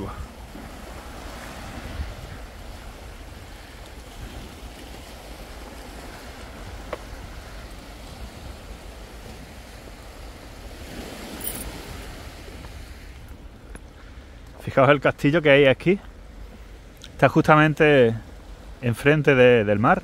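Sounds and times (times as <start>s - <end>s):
sea waves washing over rocks: 0.0s - 14.0s.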